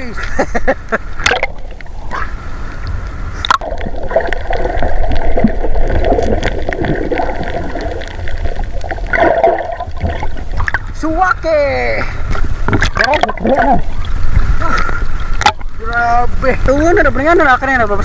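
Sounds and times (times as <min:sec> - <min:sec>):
underwater gurgling and bubbling: 0:01.2 - 0:11.0, 0:12.3 - 0:15.8
sharp knocks and splashes: 0:03.4 - 0:10.9, 0:12.3 - 0:14.0.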